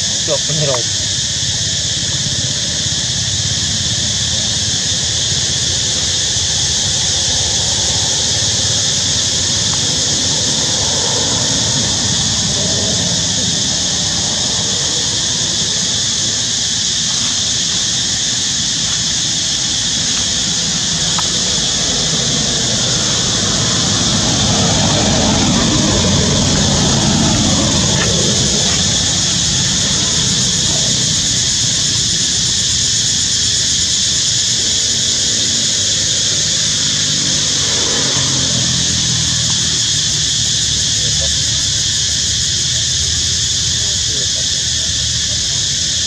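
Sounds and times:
vehicle passing: 0:00.0 - 0:45.8
motorbike traffic rumble: 0:00.0 - 0:46.0
high-pitched drone: 0:19.0 - 0:33.1.

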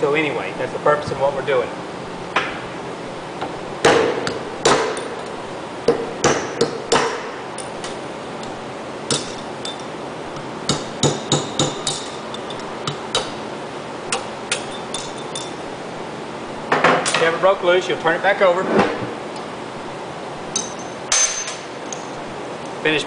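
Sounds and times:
hammer tapping metal punch: 0:05.9 - 0:13.4.

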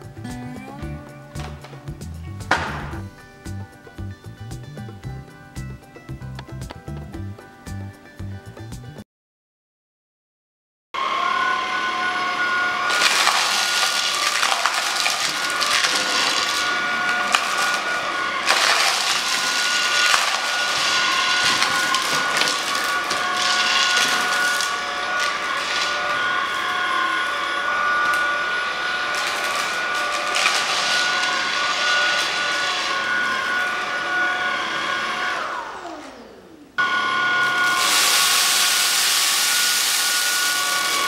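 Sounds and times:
stick vacuum high whine: 0:11.0 - 0:41.0
cereal crunching and rattling: 0:12.9 - 0:26.6, 0:29.0 - 0:32.9, 0:37.6 - 0:41.0.

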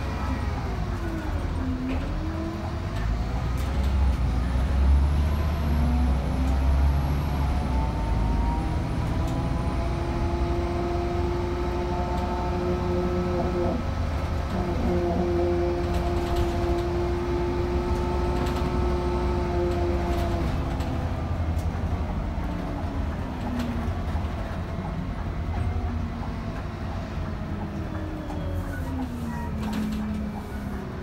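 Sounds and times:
bus engine drone: 0:00.0 - 0:31.0
bus whine: 0:00.0 - 0:31.0
light rattles and clicks: 0:29.1 - 0:30.8.

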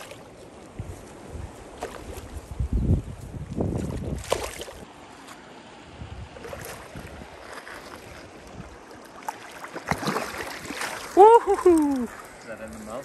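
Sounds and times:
shallow stream water: 0:00.0 - 0:13.0
wind rumble on microphone: 0:00.7 - 0:04.9, 0:05.8 - 0:07.4
fish splashing at surface: 0:09.2 - 0:12.2.

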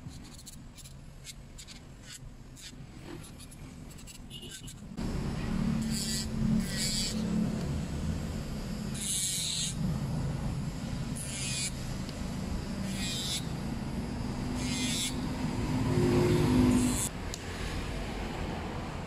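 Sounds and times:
electric nail drill humming: 0:05.0 - 0:17.8
drill bit grinding nail: 0:05.8 - 0:07.3, 0:08.9 - 0:09.8, 0:11.2 - 0:11.8, 0:12.8 - 0:13.6, 0:14.3 - 0:15.4, 0:16.4 - 0:17.1.

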